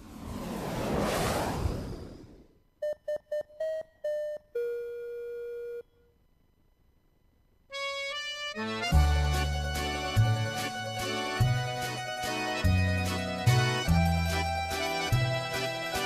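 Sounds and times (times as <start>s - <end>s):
whoosh: 0.0s - 2.6s
theme music: 7.8s - 16.0s.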